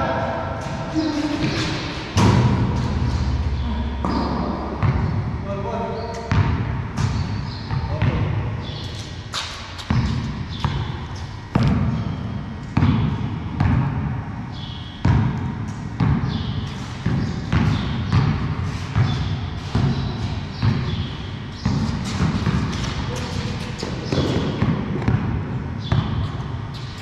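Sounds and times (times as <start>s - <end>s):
basketball bouncing on concrete: 4.0s - 5.2s, 6.2s - 8.3s, 9.8s - 12.2s, 12.8s - 14.2s, 15.0s - 26.4s.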